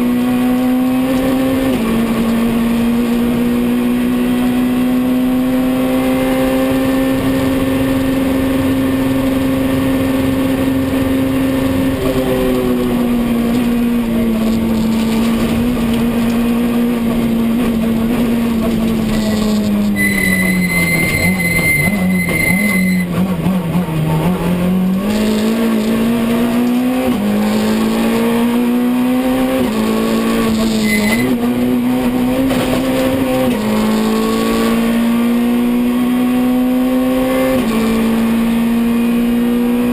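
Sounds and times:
rally car engine revving: 0:00.0 - 0:39.9
high steady squeal: 0:19.4 - 0:23.1, 0:30.6 - 0:31.4.

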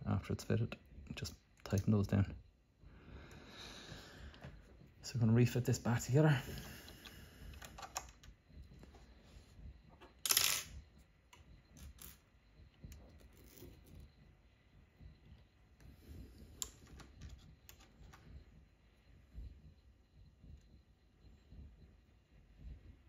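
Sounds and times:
light clicks and taps of parts: 0:06.9 - 0:08.9.

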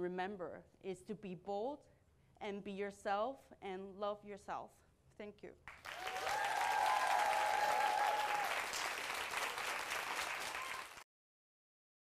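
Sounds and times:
audience applauding: 0:05.7 - 0:11.1
voices cheering: 0:05.9 - 0:11.0.

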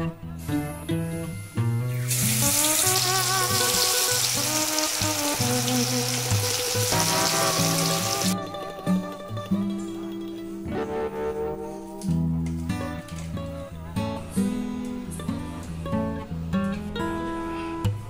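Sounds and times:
background music: 0:00.0 - 0:18.0
oil sizzling and bubbling: 0:01.8 - 0:08.4.

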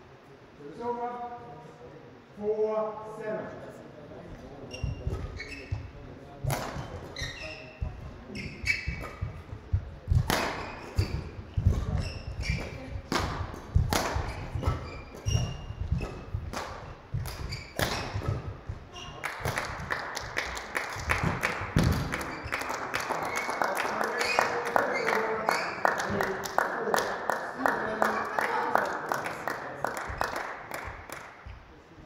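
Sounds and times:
shoes squeaking: 0:04.6 - 0:20.4, 0:21.2 - 0:23.5
rackets hitting shuttlecock: 0:06.4 - 0:07.2, 0:10.1 - 0:18.6, 0:21.1 - 0:22.5
footsteps thudding on court: 0:07.8 - 0:19.1
people clapping: 0:19.0 - 0:31.5.

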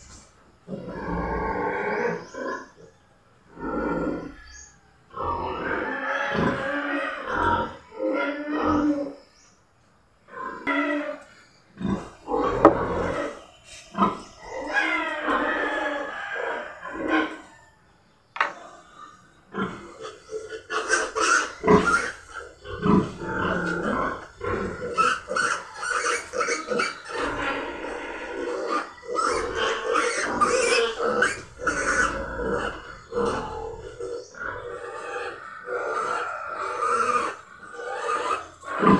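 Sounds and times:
piglets squealing and grunting: 0:00.1 - 0:09.2, 0:10.3 - 0:17.8, 0:18.4 - 0:38.9
piglet squealing in distress: 0:14.4 - 0:16.1, 0:20.7 - 0:38.9.

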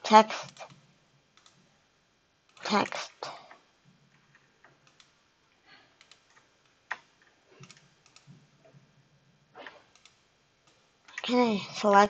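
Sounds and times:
mouse and keyboard clicks: 0:04.3 - 0:05.1, 0:06.0 - 0:08.4.

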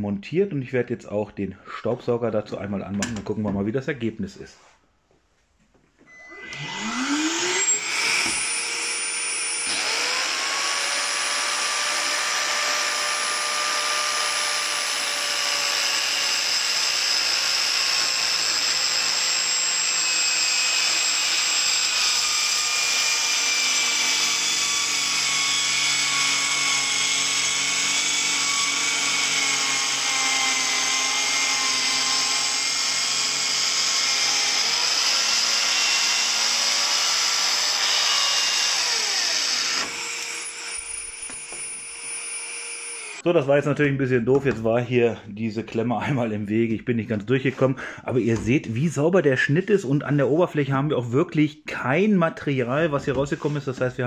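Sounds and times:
vacuum cleaner whine: 0:06.1 - 0:19.3, 0:34.6 - 0:43.2
circular saw cutting wood: 0:06.3 - 0:43.3.

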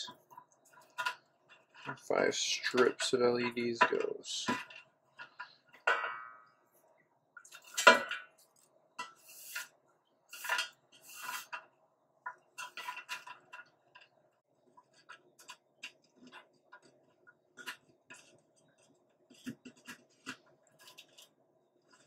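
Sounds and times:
light clicks taps and rustles: 0:00.0 - 0:06.0.

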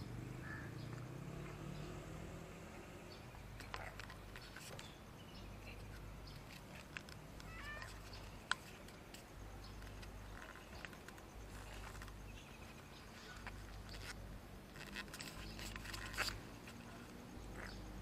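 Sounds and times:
cat meowing faintly: 0:07.4 - 0:08.0.

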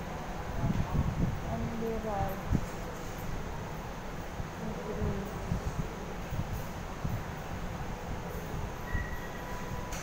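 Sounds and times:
low rumbling background noise: 0:00.0 - 0:10.0.

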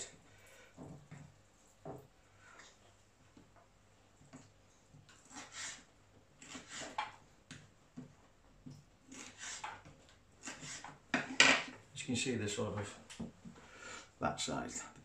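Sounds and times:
knife slicing fish on wooden board: 0:05.2 - 0:07.1, 0:09.1 - 0:11.3.

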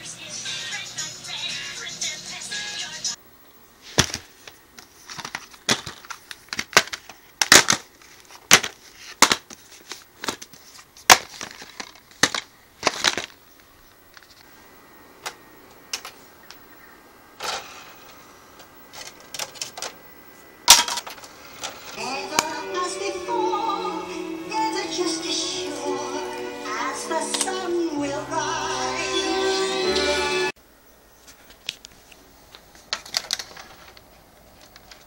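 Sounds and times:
plastic cases clicking open: 0:04.8 - 0:13.4.

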